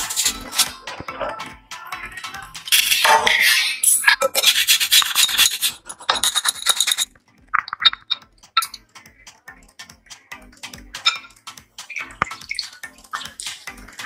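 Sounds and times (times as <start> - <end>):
potato scraping on grater: 2.7 - 7.1.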